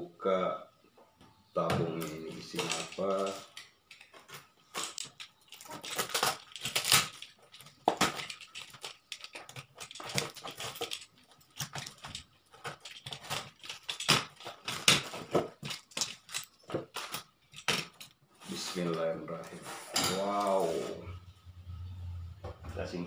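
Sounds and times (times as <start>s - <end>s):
tape and packaging tearing: 4.7s - 11.0s.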